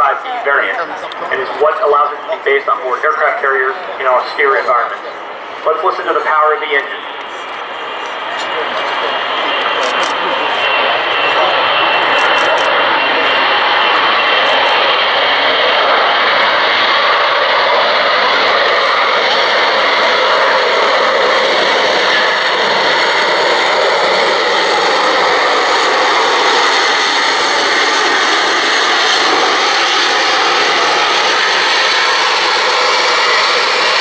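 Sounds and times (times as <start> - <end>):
jet engine roar: 0.0 - 34.0.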